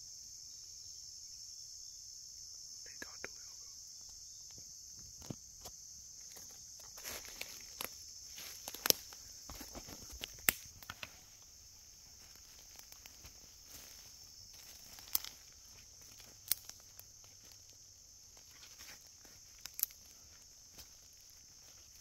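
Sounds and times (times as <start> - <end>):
insects droning: 0.0 - 22.0
footsteps on dry leaves: 6.2 - 22.0
sharp clicks or snaps: 10.3 - 11.0, 16.4 - 16.8.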